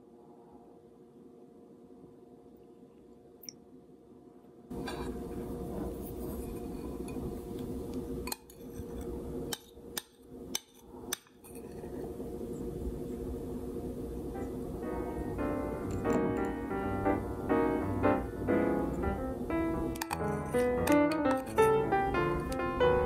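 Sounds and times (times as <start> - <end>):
steady background hum: 0.0 - 23.0
metal spoon clinking glass bowl: 20.0 - 21.8.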